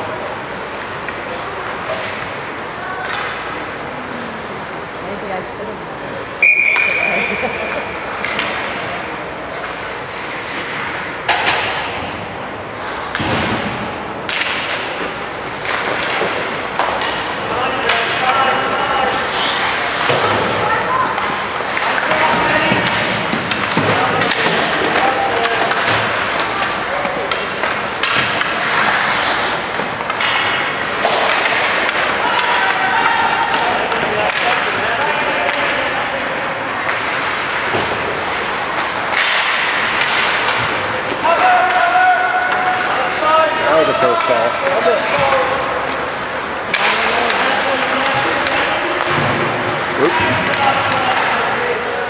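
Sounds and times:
hollow arena noise: 0:00.0 - 0:52.0
spectators' voices: 0:00.0 - 0:52.0
hockey sticks and puck cracking: 0:00.1 - 0:03.9, 0:06.3 - 0:52.0
skate blades scraping ice: 0:08.0 - 0:11.4, 0:14.9 - 0:48.5.

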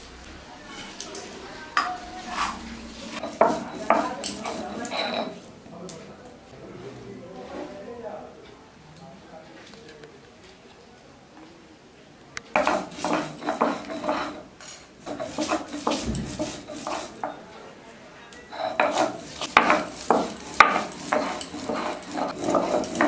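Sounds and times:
metal pots and utensils clattering: 0:00.0 - 0:05.4, 0:12.5 - 0:17.4, 0:18.5 - 0:23.0.

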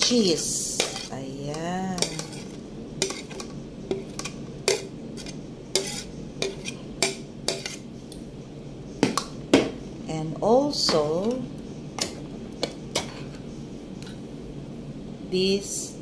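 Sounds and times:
cheese scraped into metal bowl: 0:04.7 - 0:06.8.

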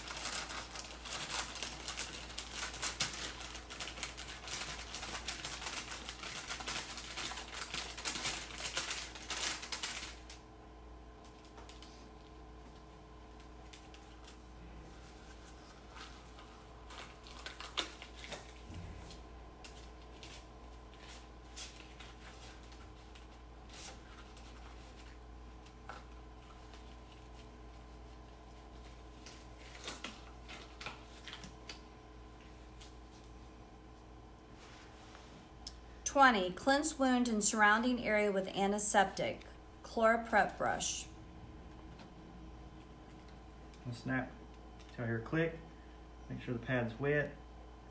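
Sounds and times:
gloves and paper wrapper crinkling: 0:00.0 - 0:35.6
faint electrical hum: 0:00.0 - 0:47.9.

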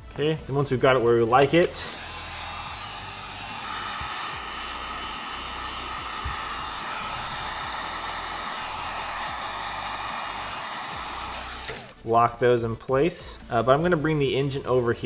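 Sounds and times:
heat gun blowing hot air: 0:00.9 - 0:12.0.

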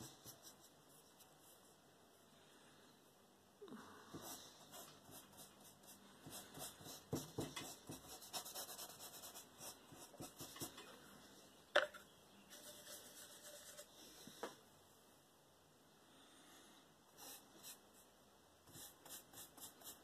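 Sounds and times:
paintbrush strokes on canvas: 0:12.5 - 0:14.3.

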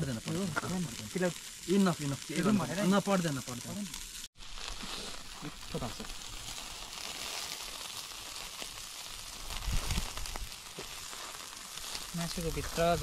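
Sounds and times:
meat sizzling on charcoal grill: 0:00.0 - 0:13.0.

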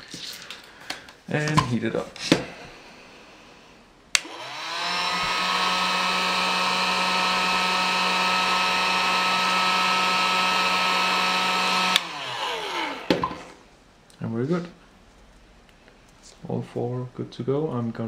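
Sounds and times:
heat gun switch click: 0:04.1 - 0:04.4
heat gun fan whine: 0:04.1 - 0:13.6.

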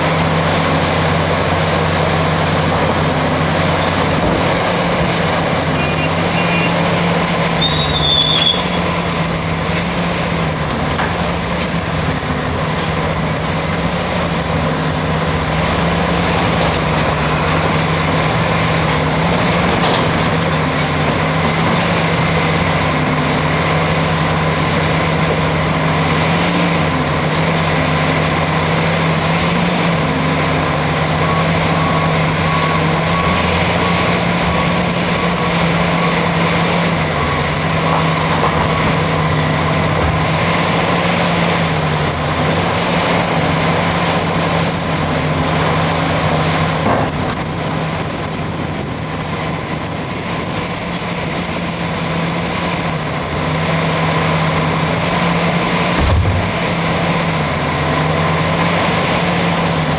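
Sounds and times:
excavator diesel engine: 0:00.0 - 0:59.9
metallic screech: 0:07.6 - 0:08.8
faint reversing alarm beeps: 0:31.2 - 0:33.9.

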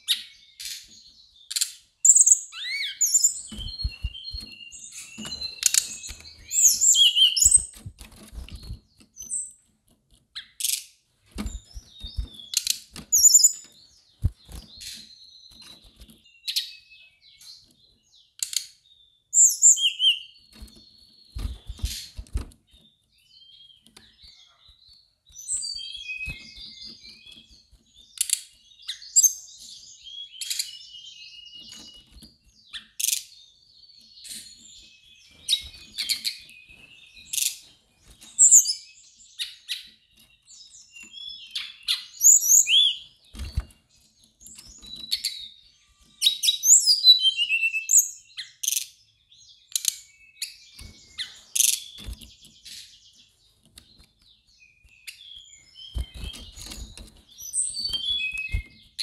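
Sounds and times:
other bird chirps: 0:00.0 - 0:07.8, 0:11.5 - 0:17.6, 0:54.7 - 0:59.0
bird singing high phrases: 0:00.0 - 0:09.6, 0:10.4 - 0:59.0.

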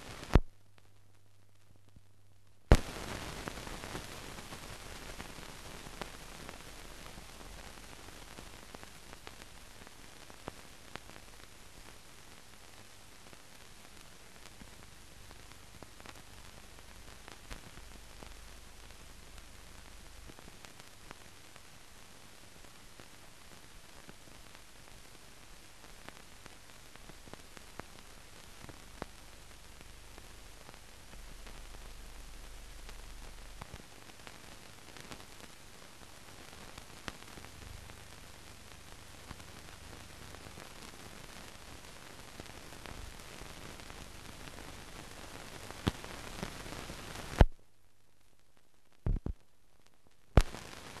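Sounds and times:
film surface hiss and crackle: 0:00.0 - 0:51.0
loud pops: 0:02.7 - 0:06.2, 0:50.3 - 0:51.0.

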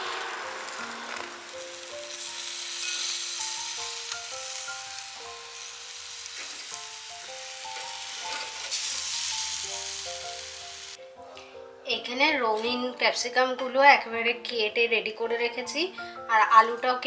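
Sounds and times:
chicken sizzling on grill: 0:00.0 - 0:11.0
light background music: 0:00.0 - 0:17.0
metal tongs turning meat: 0:02.1 - 0:09.7.

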